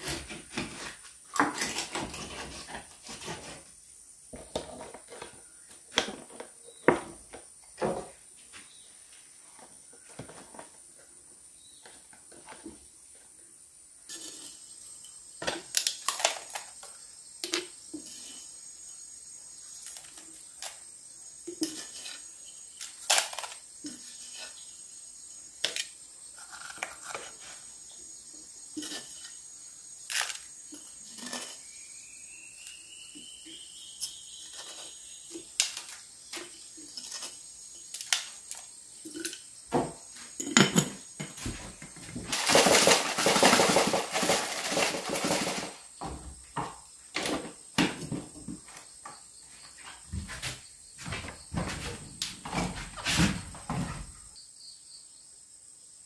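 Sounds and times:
objects knocking and clattering: 4.3 - 8.2, 34.5 - 49.2, 49.8 - 54.2.

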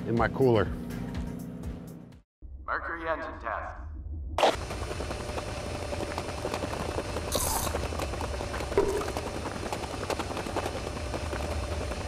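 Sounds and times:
treadmill hum and whine: 4.6 - 12.0
running footfalls on treadmill belt: 4.9 - 12.0.

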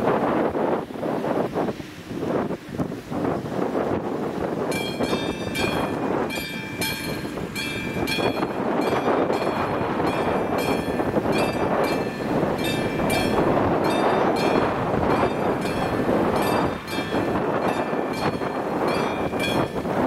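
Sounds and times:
wind noise on microphone: 0.0 - 20.0
crossing warning bell dinging: 4.7 - 20.0.

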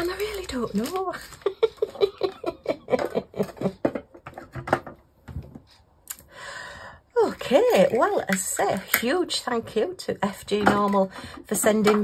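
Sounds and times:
woman laughing: 1.2 - 4.0.

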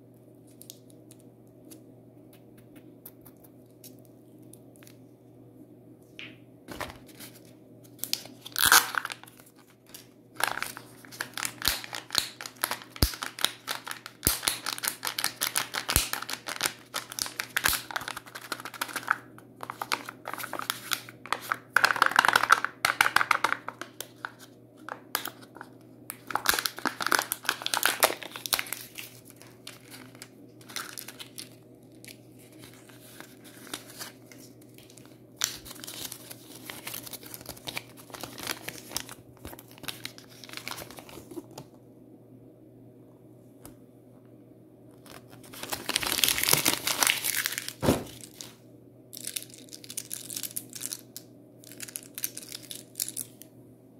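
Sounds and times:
foil and plastic crinkling: 6.7 - 41.6, 45.0 - 48.6, 49.2 - 53.4.

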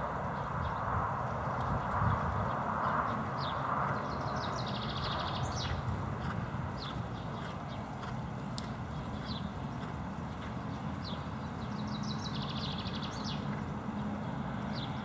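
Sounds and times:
birds chirping: 1.7 - 15.0
horse hoofbeats on grass: 5.5 - 11.8.

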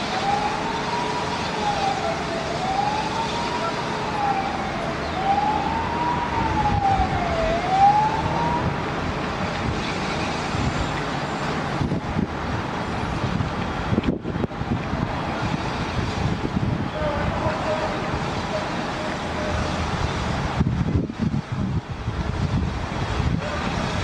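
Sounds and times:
emergency siren wailing: 0.0 - 12.3, 15.3 - 21.1, 23.1 - 24.0
steady rushing background noise: 0.0 - 24.0.

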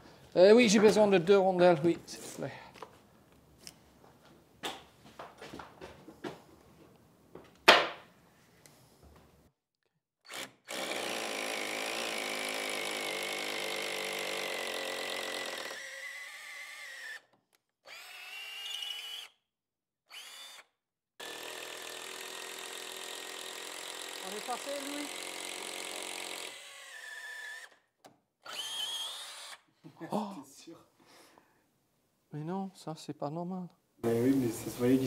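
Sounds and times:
electric drill boring into wood: 10.2 - 19.4, 20.1 - 29.7.

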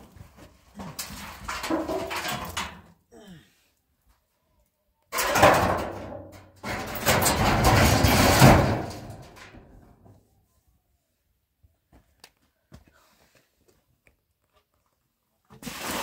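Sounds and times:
metal roofing sheet scraping and rattling: 0.0 - 2.9, 5.1 - 10.1.

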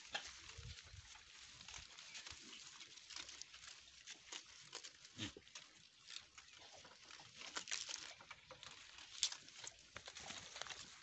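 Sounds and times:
dry twigs crackling: 0.0 - 11.0
leaves rustling: 0.0 - 11.0.

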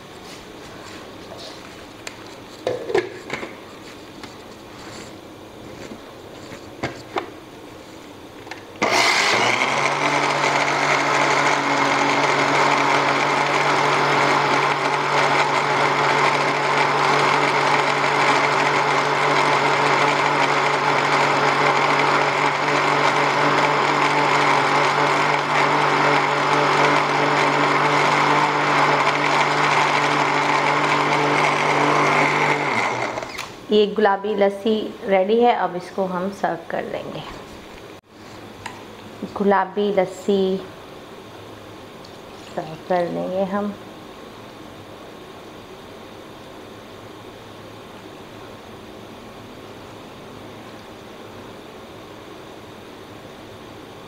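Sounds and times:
blender motor running: 8.8 - 33.6.

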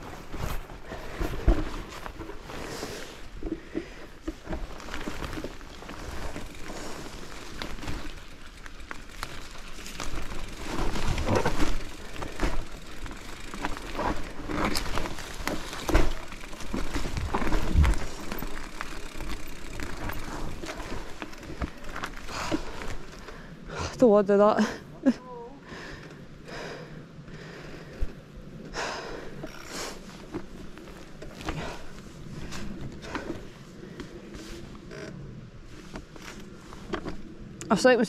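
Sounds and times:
bike tyres on dirt: 0.0 - 38.0
bike clattering over bumps: 0.2 - 23.5.

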